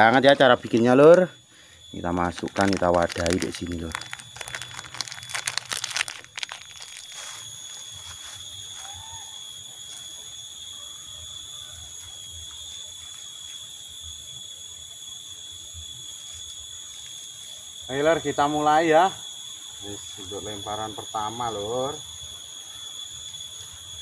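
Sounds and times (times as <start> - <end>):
insects droning: 0.0 - 24.0
crinkly rustling and clicking: 2.3 - 8.4.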